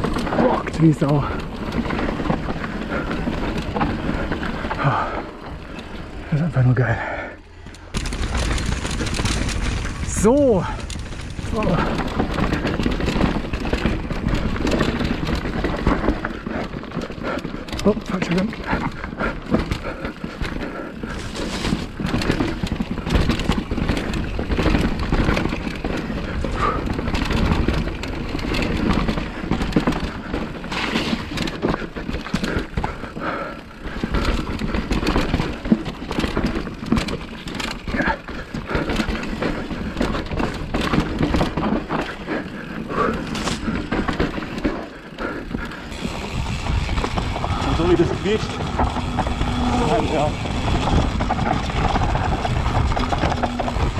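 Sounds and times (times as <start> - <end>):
bike chain and frame rattling: 0.0 - 53.9
bike tyres rolling over dirt: 0.0 - 53.9.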